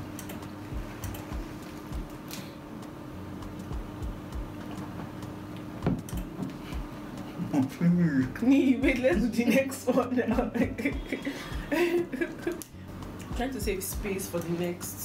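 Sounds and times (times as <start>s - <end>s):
steady low hum: 0.0s - 15.0s
knock on table: 5.8s - 6.0s.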